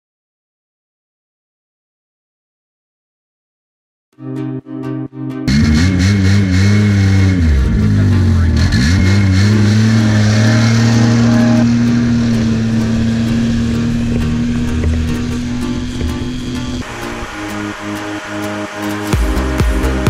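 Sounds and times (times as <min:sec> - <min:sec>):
snowmobile engine running: 0:05.5 - 0:20.0.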